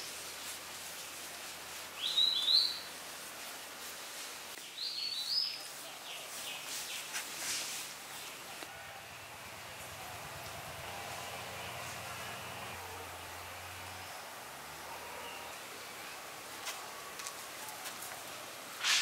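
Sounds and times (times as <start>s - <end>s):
faint background hiss: 0.0s - 19.0s.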